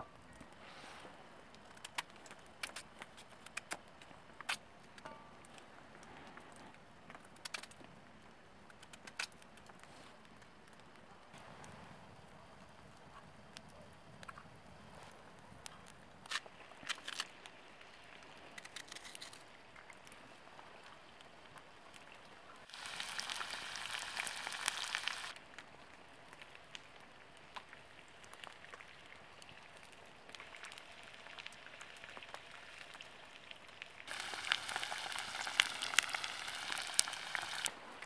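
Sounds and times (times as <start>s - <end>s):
food sizzling in a frying pan: 22.7s - 25.3s, 34.1s - 37.7s.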